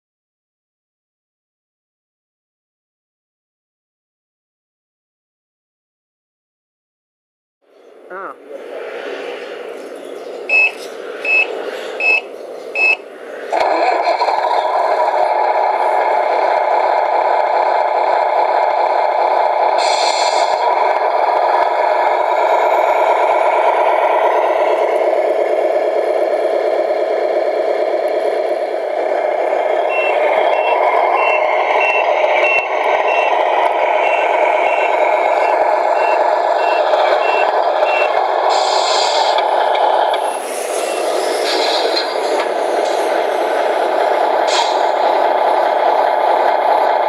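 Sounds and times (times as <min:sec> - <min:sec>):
simulated diesel engine running: 0:08.1 - 0:47.0
reversing beeps: 0:10.5 - 0:13.0, 0:29.8 - 0:38.2
brief hisses: 0:38.5 - 0:39.4.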